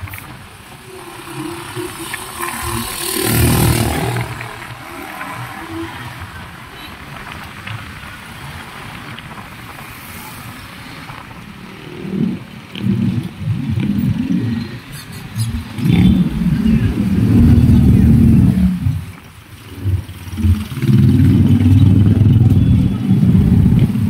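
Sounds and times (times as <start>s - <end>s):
road and traffic noise: 0.0s - 24.0s
loud rushing: 0.7s - 6.8s.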